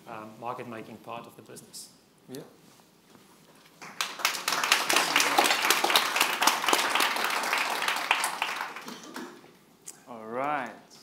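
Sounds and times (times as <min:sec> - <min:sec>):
audience applauding: 0:03.8 - 0:09.5.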